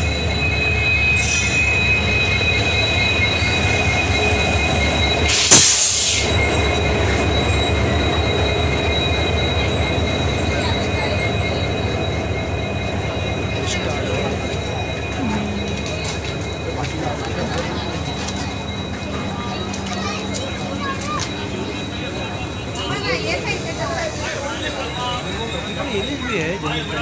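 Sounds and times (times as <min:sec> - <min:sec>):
train rolling with low rumble: 0:00.0 - 0:27.0.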